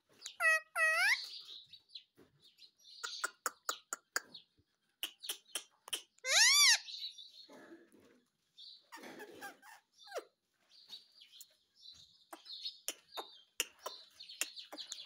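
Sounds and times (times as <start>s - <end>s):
parakeet chattering: 0.2s - 1.4s, 3.0s - 4.4s, 5.0s - 6.9s
parakeet chirps: 0.2s - 1.5s, 5.0s - 7.1s.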